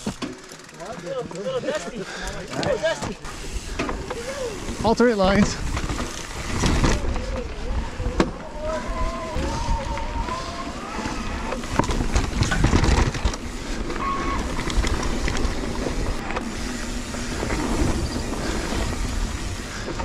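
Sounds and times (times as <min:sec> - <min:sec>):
bike rattling and knocking: 0:00.0 - 0:20.0
tyre noise on dirt: 0:02.4 - 0:20.0
wind rush on camera: 0:06.5 - 0:13.4.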